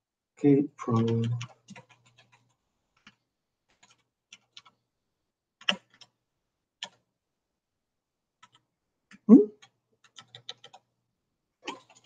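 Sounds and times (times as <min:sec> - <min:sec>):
computer keyboard keys clicking: 0:01.0 - 0:04.8, 0:05.6 - 0:06.1, 0:06.8 - 0:07.0, 0:08.4 - 0:10.8, 0:11.7 - 0:12.0.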